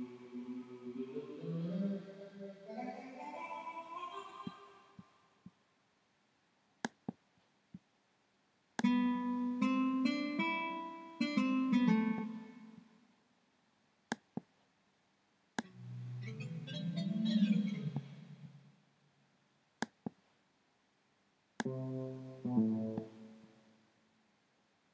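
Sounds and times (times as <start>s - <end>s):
choir-like synth pad: 0.0s - 5.0s
plucked guitar-like synth notes: 21.6s - 23.5s.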